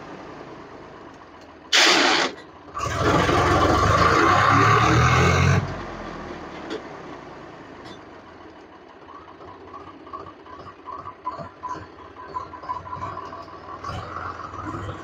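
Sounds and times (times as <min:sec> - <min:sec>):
tractor diesel engine idling: 0:00.0 - 0:15.0.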